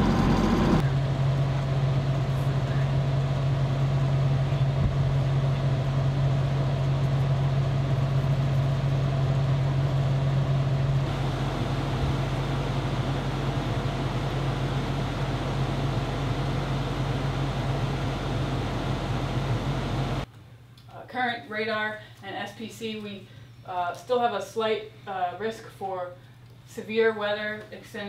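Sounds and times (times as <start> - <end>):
machinery humming: 0.0 - 20.3.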